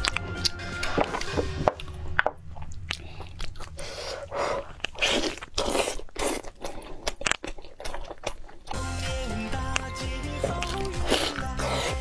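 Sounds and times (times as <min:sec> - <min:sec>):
chewing meat: 0:00.0 - 0:12.0
biting with sharp clicks: 0:02.6 - 0:08.8, 0:09.5 - 0:12.0.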